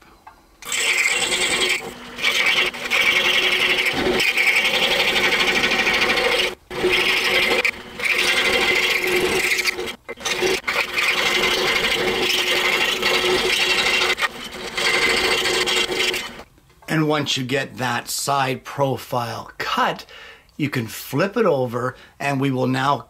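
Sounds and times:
scroll saw buzzing through wood: 0.6s - 16.5s.

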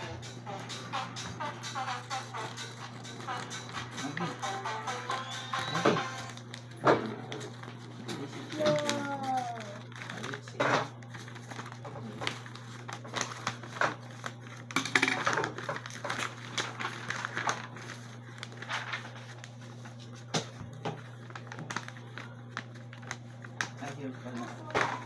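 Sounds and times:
paper rustling and crinkling: 5.2s - 25.0s.

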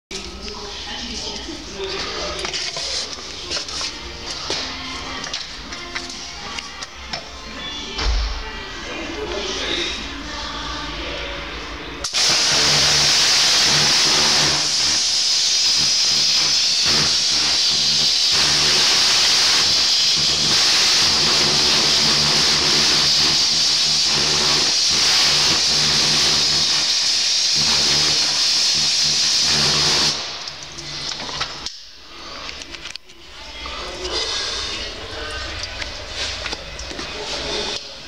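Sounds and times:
pressure washer spray hissing: 12.1s - 31.0s
pump motor humming: 12.2s - 31.4s.

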